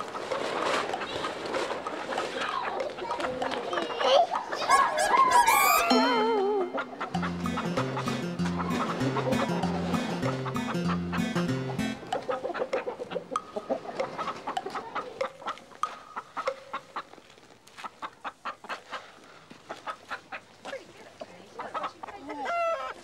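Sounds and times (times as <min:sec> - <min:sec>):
hens clucking: 0:00.1 - 0:17.1, 0:17.8 - 0:23.0
hen drawn-out call: 0:04.7 - 0:07.0.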